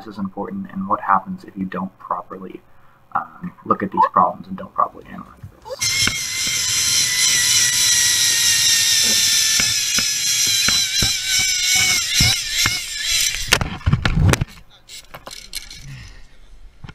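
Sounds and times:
zipline pulleys whining on cable: 5.7s - 13.9s, 14.9s - 16.0s.

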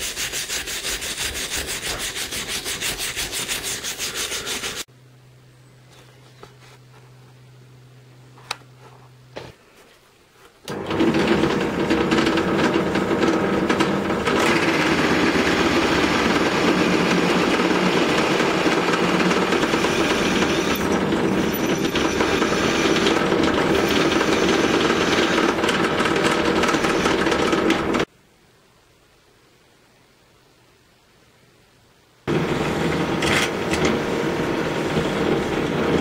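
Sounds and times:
drill press drilling into metal: 10.7s - 28.0s.

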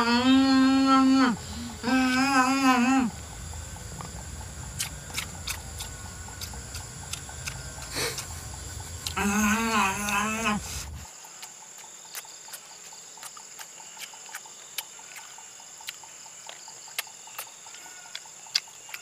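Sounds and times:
man humming: 0.0s - 3.2s, 7.8s - 8.4s, 9.0s - 11.0s
insects droning: 0.0s - 19.0s.

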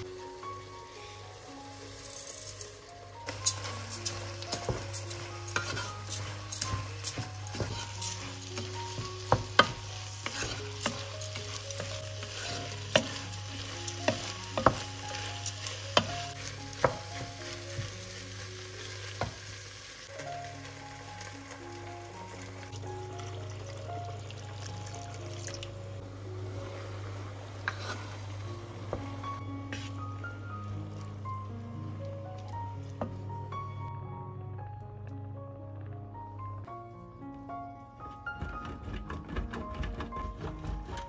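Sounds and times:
rice and meat sizzling in pot: 0.0s - 33.3s
wooden spoon knocking pan: 4.5s - 13.3s, 13.9s - 18.0s.

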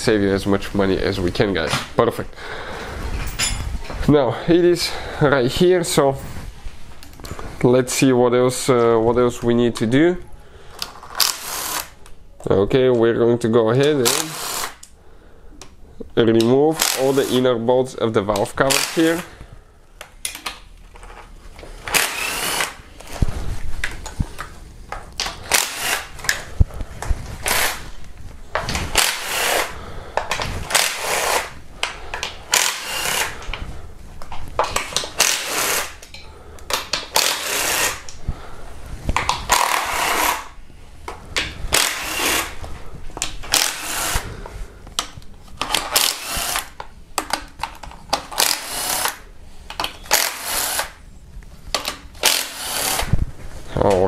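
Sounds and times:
air ratchet whirring: 11.0s - 12.0s, 14.0s - 14.9s, 21.8s - 22.8s, 25.4s - 26.4s, 27.4s - 27.8s, 28.7s - 29.8s, 30.6s - 31.6s, 32.5s - 33.5s, 35.0s - 36.0s, 37.1s - 38.1s, 39.5s - 40.6s, 41.7s - 42.6s, 43.4s - 44.3s, 45.8s - 46.8s, 48.4s - 49.2s, 50.1s - 51.0s, 52.2s - 53.1s.

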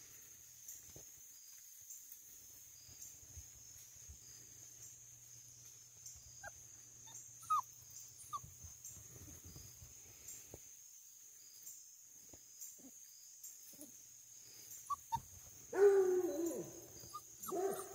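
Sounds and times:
puppy whimpering: 6.4s - 8.5s, 14.9s - 15.3s, 16.4s - 17.9s.

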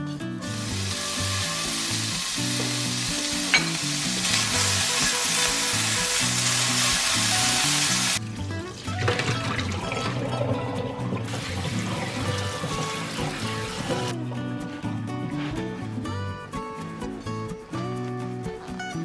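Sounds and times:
bacon sizzling in a frying pan: 0.5s - 8.2s.

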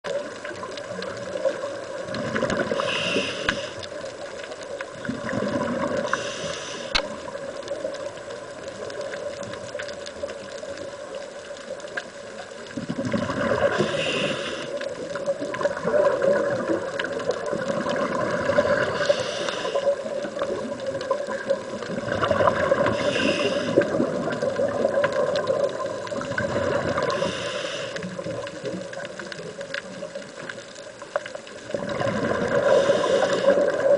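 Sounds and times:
diver breathing through regulator: 2.6s - 3.9s, 6.0s - 7.1s, 13.6s - 14.9s, 18.7s - 20.0s, 22.8s - 24.0s, 27.0s - 28.2s, 32.5s - 33.9s
hissing gurgling exhaust bubbles: 4.9s - 7.5s, 12.7s - 29.6s, 31.6s - 33.9s.

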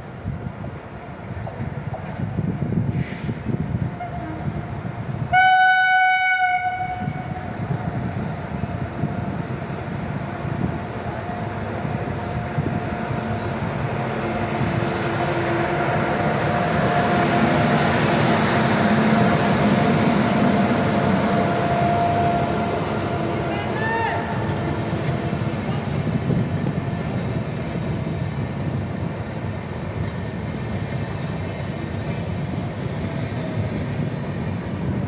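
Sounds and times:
train rumbling on rails: 0.0s - 35.0s
locomotive horn blast: 5.3s - 7.3s.

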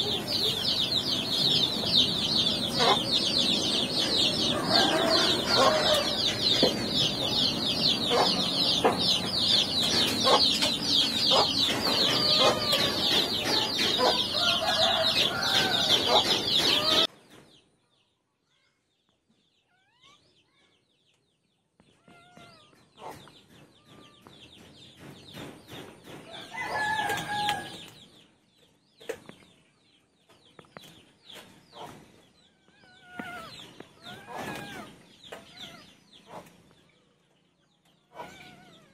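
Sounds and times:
chickens clucking: 0.0s - 17.1s, 22.9s - 28.0s, 30.7s - 32.3s, 33.2s - 36.8s.

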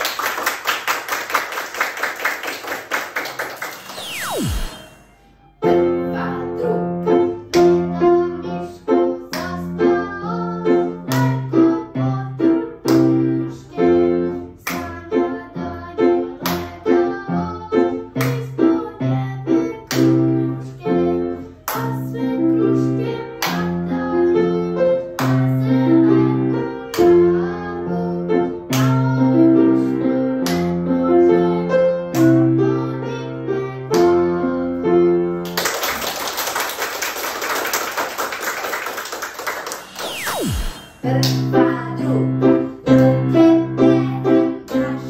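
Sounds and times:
small group clapping: 0.0s - 4.7s, 35.4s - 40.3s
child singing: 5.2s - 34.8s, 41.0s - 45.0s.

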